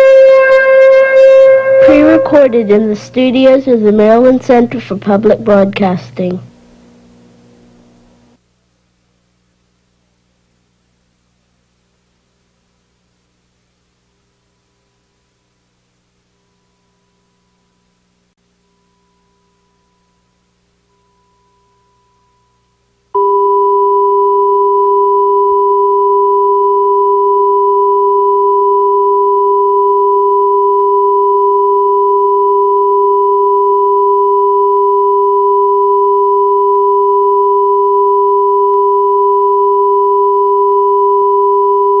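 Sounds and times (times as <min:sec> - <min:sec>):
two-pitch electronic test tone: 0:00.0 - 0:04.6, 0:18.6 - 0:42.0.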